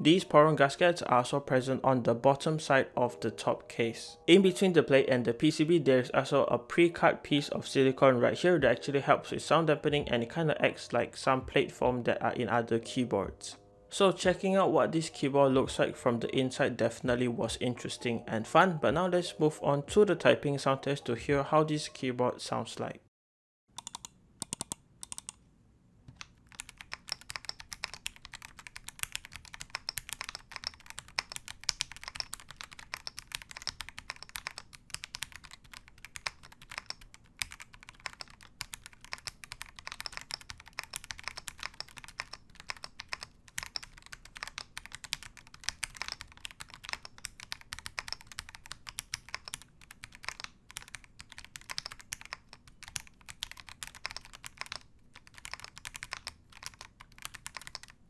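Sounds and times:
muted mechanical keyboard typing: 0:23.7 - 0:25.4, 0:26.1 - 0:58.0.

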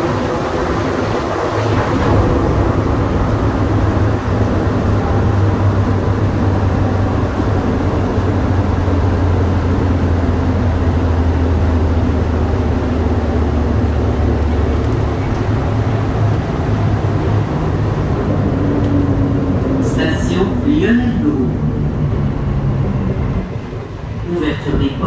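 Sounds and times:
train rumbling through tunnel: 0:00.0 - 0:25.0.

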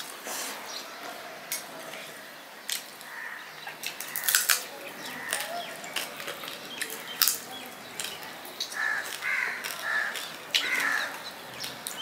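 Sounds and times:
crow calling: 0:03.0 - 0:06.1, 0:08.6 - 0:12.0
mouth clicks and chewing smacks: 0:03.7 - 0:12.0.

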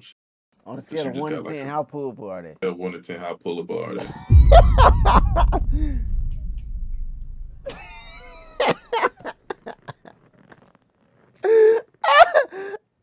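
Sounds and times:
person laughing hard: 0:04.0 - 0:05.4
low rumble: 0:04.3 - 0:08.6.

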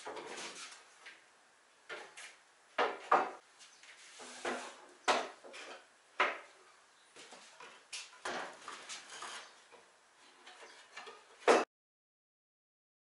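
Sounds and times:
wooden lumber knocks and clatters: 0:02.8 - 0:03.4, 0:04.4 - 0:06.5, 0:07.2 - 0:09.8.

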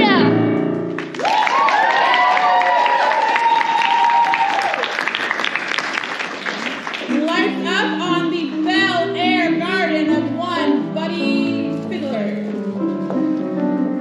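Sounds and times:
piano chords with wavering melody: 0:00.0 - 0:01.2, 0:07.1 - 0:14.0
applause: 0:01.0 - 0:07.2.

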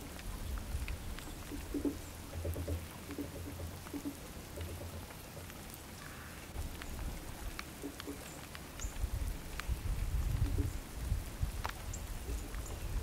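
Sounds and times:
rain-like patter: 0:00.0 - 0:13.0
sharp ticks: 0:00.8 - 0:05.7, 0:06.8 - 0:09.7.

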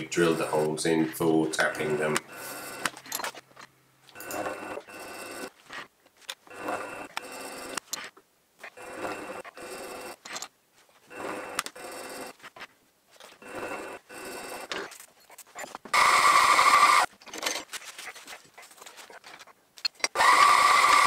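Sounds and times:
milling machine spindle whine: 0:01.6 - 0:02.9, 0:04.2 - 0:05.5, 0:06.5 - 0:07.8, 0:08.8 - 0:10.2, 0:11.1 - 0:12.3, 0:13.4 - 0:14.7, 0:16.0 - 0:17.1, 0:20.2 - 0:21.0.

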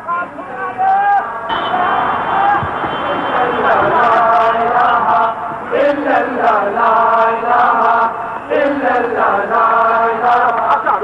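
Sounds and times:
man chanting: 0:10.4 - 0:11.0.

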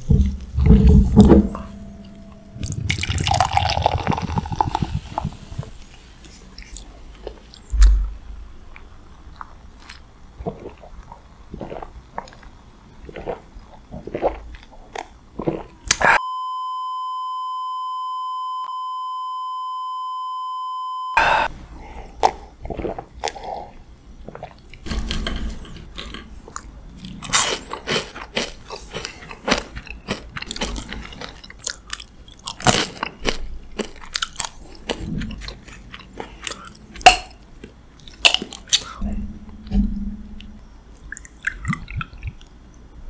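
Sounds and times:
beer gulped from a glass mug: 0:02.6 - 0:05.4
wet swallowing: 0:02.6 - 0:05.8
steady beep tone: 0:16.2 - 0:21.4.

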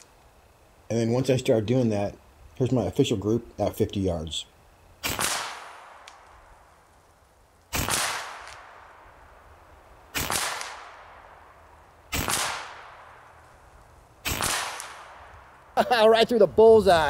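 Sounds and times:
air rifle shots: 0:05.0 - 0:06.2, 0:07.7 - 0:09.0, 0:10.1 - 0:11.3, 0:12.1 - 0:13.3, 0:14.2 - 0:15.3.

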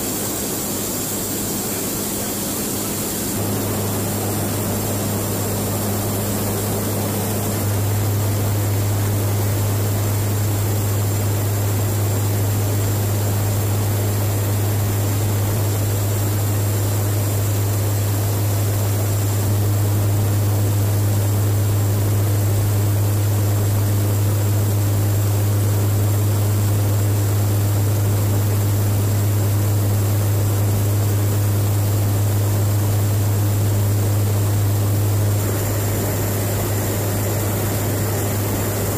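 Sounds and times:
turboprop engines droning: 0:00.0 - 0:38.9.

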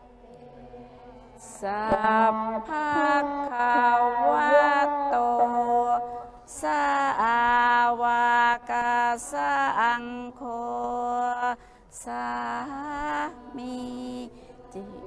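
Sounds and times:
woman singing a chanted mantra: 0:00.0 - 0:15.0.

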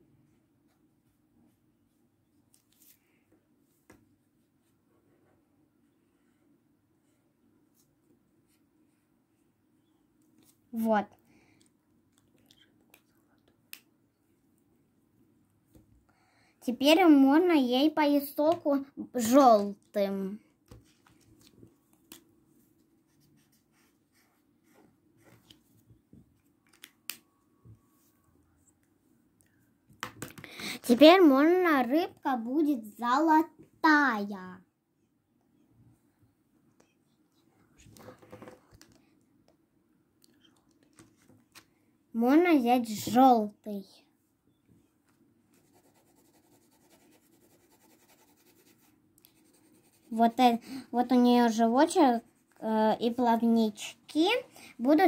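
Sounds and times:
felt-tip marker scratching on paper: 0:23.1 - 0:24.5, 0:45.5 - 0:50.4.

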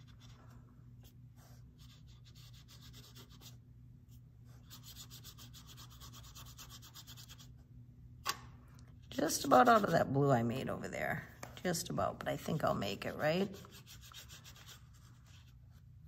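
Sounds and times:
steady low hum: 0:00.0 - 0:16.0
paintbrush rubbing on paper: 0:04.5 - 0:07.5, 0:09.1 - 0:10.2, 0:13.3 - 0:15.9.

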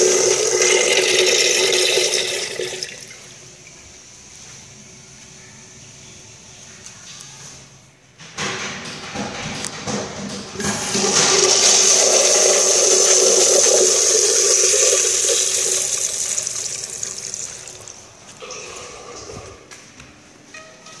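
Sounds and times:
urinal flushing: 0:00.0 - 0:04.2, 0:08.4 - 0:19.8.

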